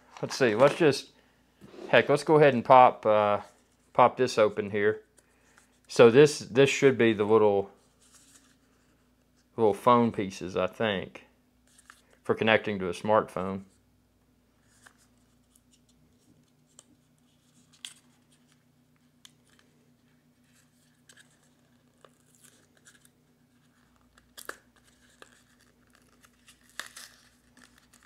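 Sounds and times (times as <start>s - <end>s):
plastic packaging crinkling and rustling: 19.3s - 28.0s.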